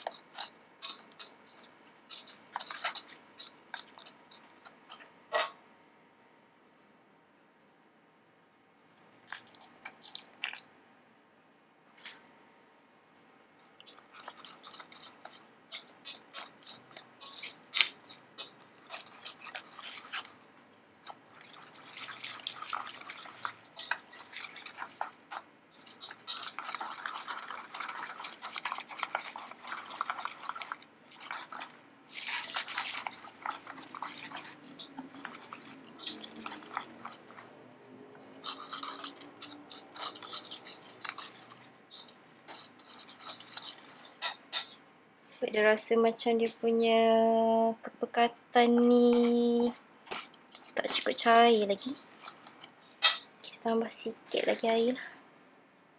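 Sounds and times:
whisk beating batter in bowl: 0:00.0 - 0:05.1, 0:13.8 - 0:44.2
whisk wires clicking on bowl: 0:13.8 - 0:37.6.

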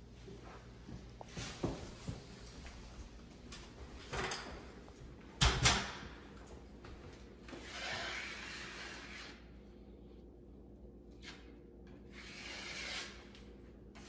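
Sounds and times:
drywall knife scraping: 0:07.6 - 0:09.5, 0:11.2 - 0:14.0.

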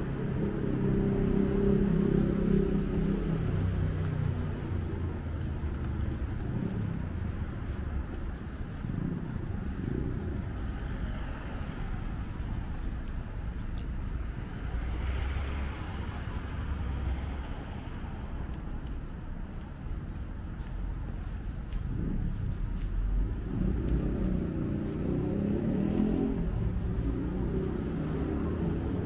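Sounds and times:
road traffic rumble: 0:00.0 - 0:29.0
vehicle passing: 0:00.0 - 0:29.0.

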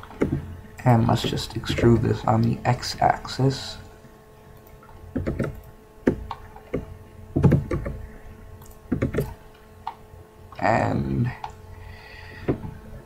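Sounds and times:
faint steady hum: 0:00.0 - 0:13.0
keyboard and mouse clicks: 0:04.6 - 0:08.0, 0:08.6 - 0:10.0.

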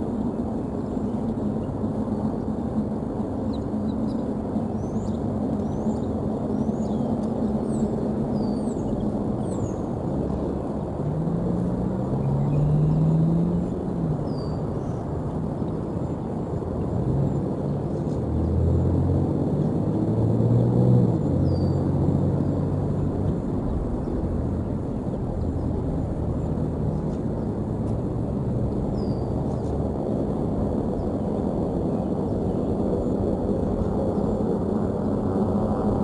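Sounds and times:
passing traffic rumble: 0:00.0 - 0:36.0.

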